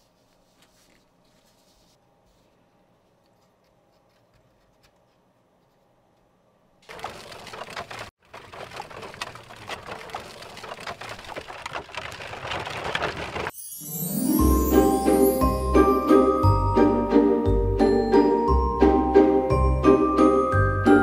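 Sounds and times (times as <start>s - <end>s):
dense crackling clatter of clicks: 6.8s - 13.5s.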